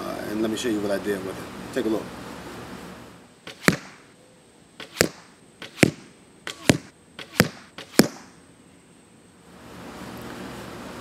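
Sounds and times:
arrows hitting target: 0:03.5 - 0:04.1, 0:04.8 - 0:08.4.

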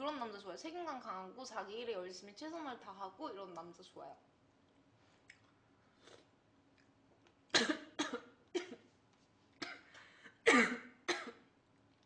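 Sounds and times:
woman coughing: 0:07.6 - 0:08.9, 0:09.6 - 0:11.4.

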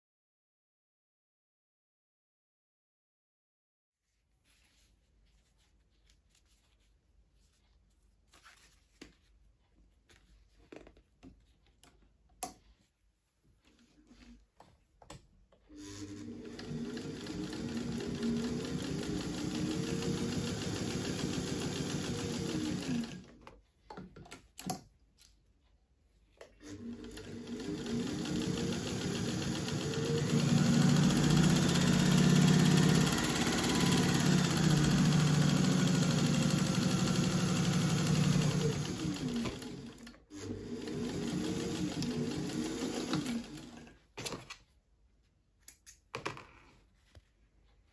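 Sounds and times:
sewing machine stitching: 0:15.6 - 0:23.4, 0:26.6 - 0:44.4.

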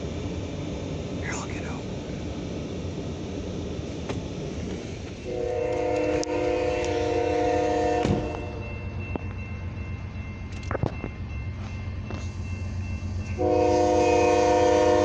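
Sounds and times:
freight train rumbling: 0:00.0 - 0:15.0
locomotive air horn blast: 0:05.2 - 0:08.6, 0:13.4 - 0:15.0.

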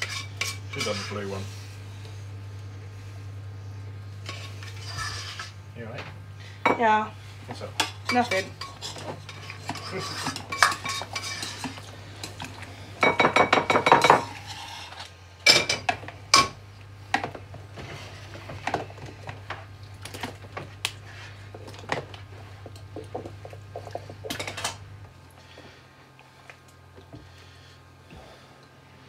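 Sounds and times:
metal utensils scraping a pan: 0:00.0 - 0:01.4, 0:04.2 - 0:05.6, 0:07.8 - 0:12.4
steady low hum: 0:00.0 - 0:29.0.

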